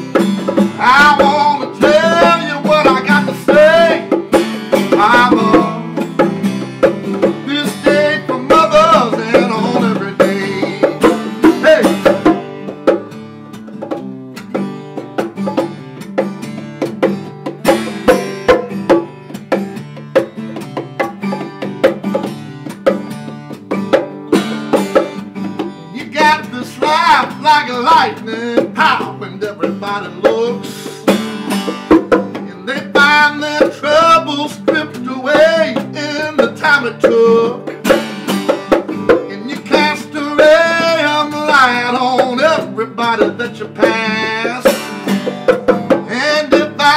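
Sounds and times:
man singing: 0.0s - 6.2s, 7.0s - 12.4s, 25.8s - 31.1s, 32.3s - 37.9s, 39.1s - 45.0s, 45.9s - 46.9s
acoustic guitar: 0.0s - 46.9s.

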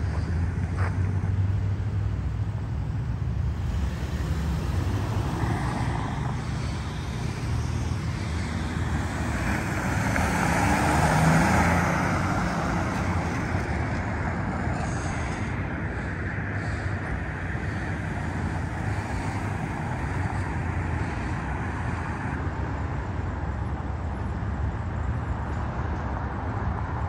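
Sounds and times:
car passing: 0.0s - 23.8s
traffic rumble: 0.0s - 27.0s.

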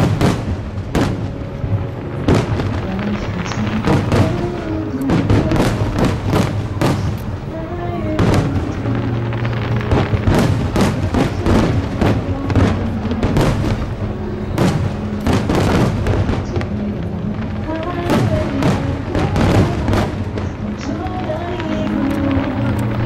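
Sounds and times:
fireworks cracking and booming: 0.0s - 23.0s
loud music: 0.0s - 23.0s.

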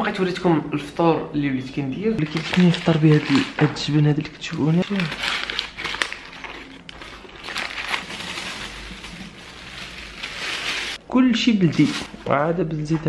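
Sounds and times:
paper crinkling: 2.2s - 3.7s, 4.4s - 11.0s, 11.7s - 12.3s
plastic bag rustling: 2.2s - 11.0s, 11.7s - 12.3s.

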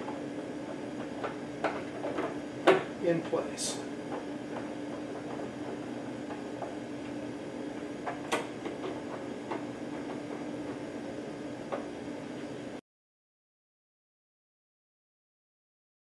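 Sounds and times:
steady low hum: 0.0s - 12.8s.

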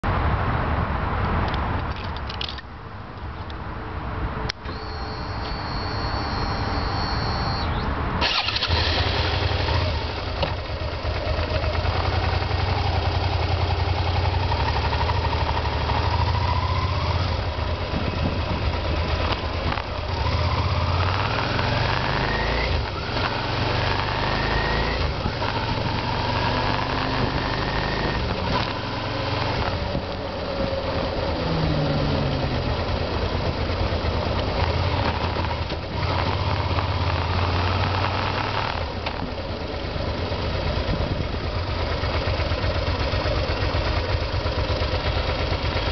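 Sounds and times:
starter click and whine: 4.5s - 13.6s, 19.1s - 30.3s, 34.4s - 39.4s
motorcycle engine revving: 4.7s - 45.9s.

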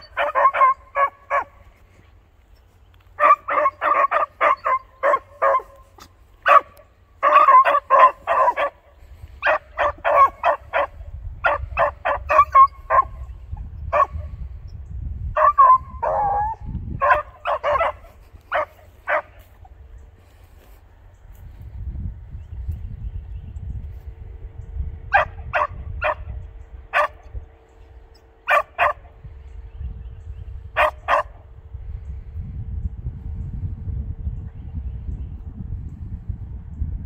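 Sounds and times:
dogs barking: 0.0s - 2.0s, 2.6s - 14.3s, 15.3s - 19.9s, 25.1s - 27.3s, 28.1s - 29.2s, 30.7s - 31.5s.

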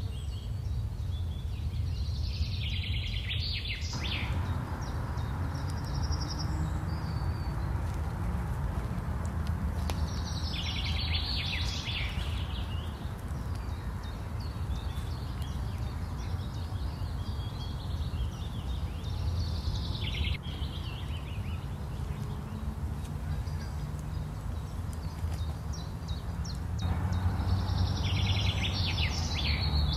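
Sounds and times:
songbirds singing: 0.0s - 29.9s
low background rumble: 4.0s - 17.0s.

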